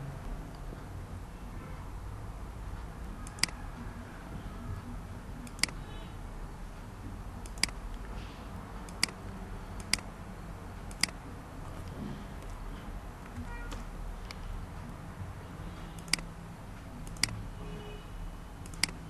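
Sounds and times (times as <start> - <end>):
computer mouse clicking: 3.0 - 3.6, 4.8 - 5.8, 7.4 - 8.1, 8.8 - 10.1, 10.8 - 12.6, 16.0 - 16.3, 17.0 - 17.4, 18.6 - 19.0.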